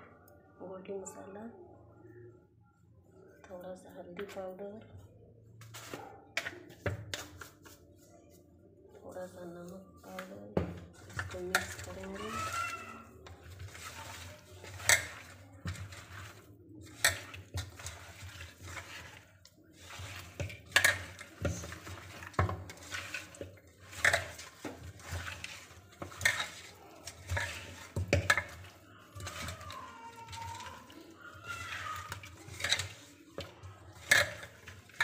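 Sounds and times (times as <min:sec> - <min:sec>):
soft rustle of mixing: 0:00.1 - 0:35.0.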